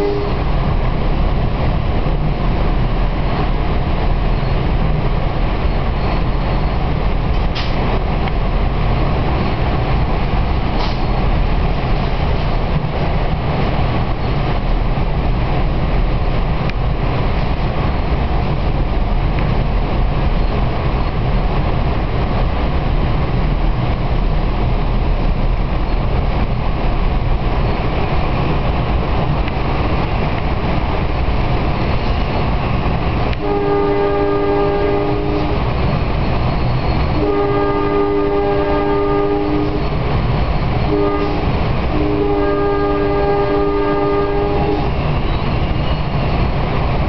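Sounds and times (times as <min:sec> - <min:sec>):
train air horn: 0:00.0 - 0:00.5, 0:33.4 - 0:35.7, 0:37.1 - 0:40.0, 0:40.9 - 0:45.0
train car running rumble: 0:00.0 - 0:47.0.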